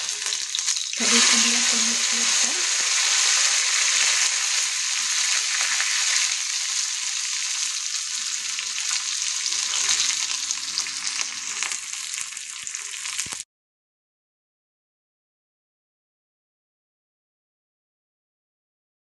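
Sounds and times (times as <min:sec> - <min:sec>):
shallots sizzling in hot oil: 0:00.0 - 0:13.5.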